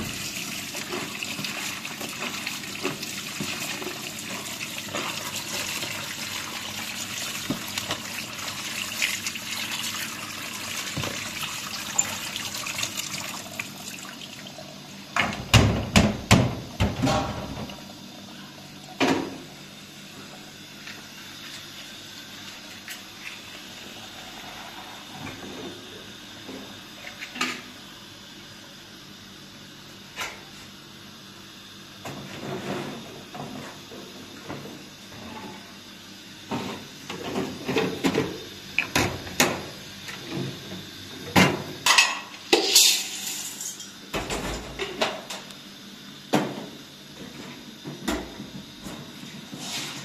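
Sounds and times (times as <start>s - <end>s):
water running: 0.0s - 15.4s.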